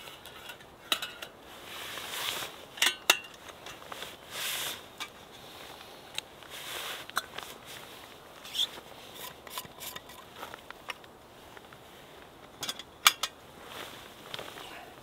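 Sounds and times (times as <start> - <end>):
metallic clicks and scrapes: 0.0 - 5.4, 8.4 - 11.0.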